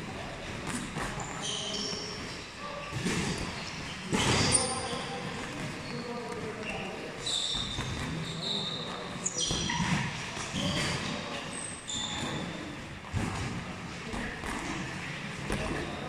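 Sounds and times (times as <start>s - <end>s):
shoes squeaking on canvas: 0.8s - 12.8s.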